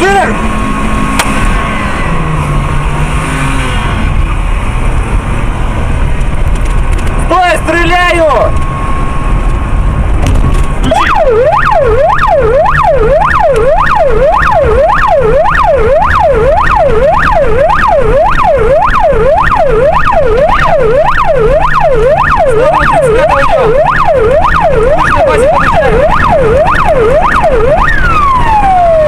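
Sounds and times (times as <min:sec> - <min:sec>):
police siren wailing: 0:10.8 - 0:29.0.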